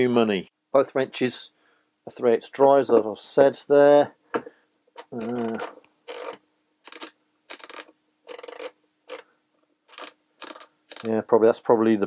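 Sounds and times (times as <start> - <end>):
wrenches scraping on workbench: 5.0 - 9.3, 9.9 - 11.1.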